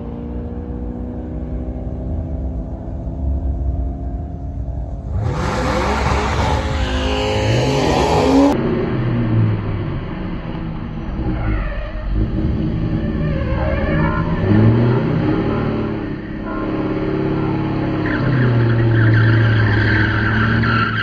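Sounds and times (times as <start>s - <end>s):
car engines idling: 0.0s - 21.0s
car engine revving hard: 5.0s - 8.6s.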